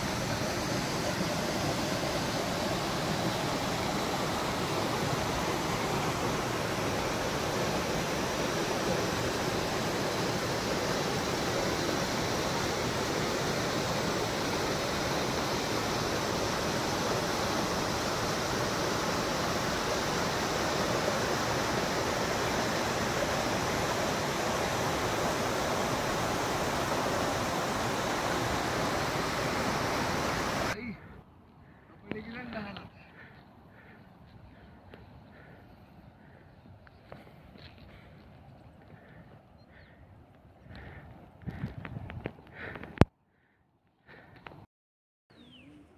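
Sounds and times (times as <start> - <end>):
stream water rushing: 0.0 - 30.8.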